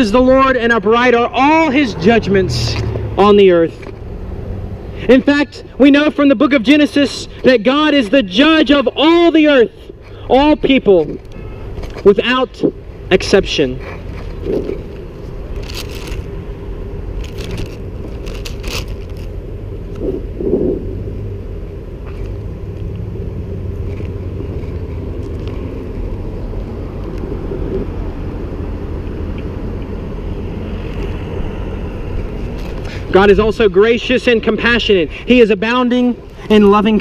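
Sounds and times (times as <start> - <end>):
low rumble of traffic: 0.0 - 37.0
thin pages rustling: 13.8 - 16.3, 17.2 - 19.4, 32.4 - 33.1.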